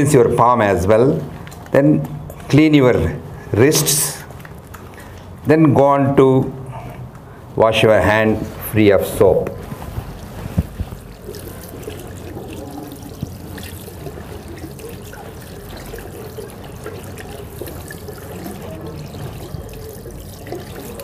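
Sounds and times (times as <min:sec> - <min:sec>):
tap water running into basin: 0:09.5 - 0:21.0
water splashing over hands: 0:10.1 - 0:21.0.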